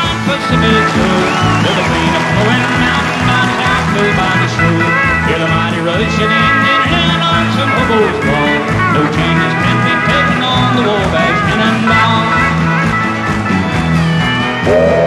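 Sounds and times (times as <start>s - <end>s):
country band playing: 0.0s - 15.0s
sliding lead melody: 0.0s - 15.0s
steady bass line: 0.0s - 15.0s.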